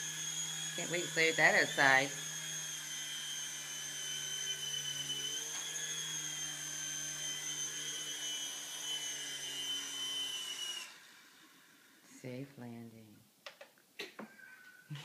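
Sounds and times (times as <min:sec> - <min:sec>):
toy helicopter motor whining: 0:00.0 - 0:12.0.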